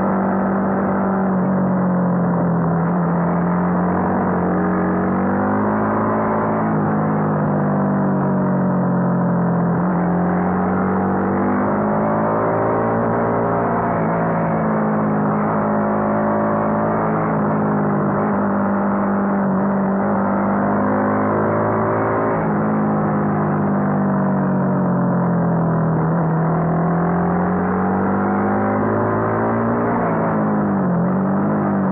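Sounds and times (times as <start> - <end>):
motorcycle engine revving: 0.0 - 24.8.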